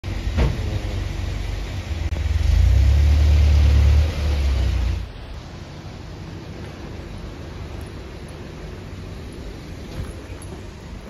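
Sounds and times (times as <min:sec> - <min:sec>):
vehicle passing rumble: 0:00.1 - 0:11.0.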